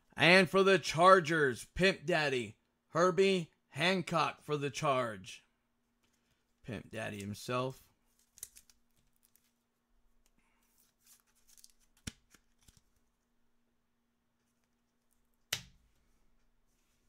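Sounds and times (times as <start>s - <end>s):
trading cards rustling: 6.0s - 13.3s.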